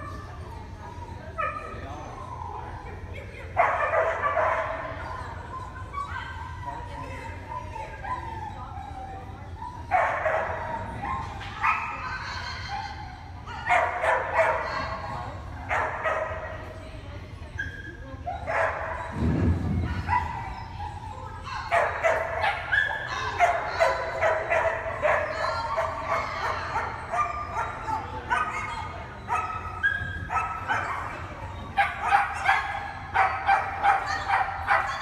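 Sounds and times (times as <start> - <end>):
low thud: 19.1 - 20.2.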